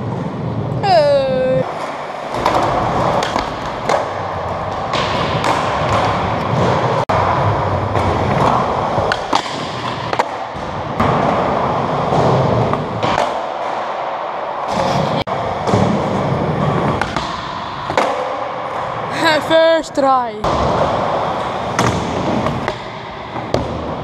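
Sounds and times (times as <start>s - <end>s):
skateboard wheels rolling on concrete: 0.0s - 0.8s, 1.4s - 19.2s, 20.4s - 24.0s
skateboard clacks and thuds: 2.2s - 18.8s.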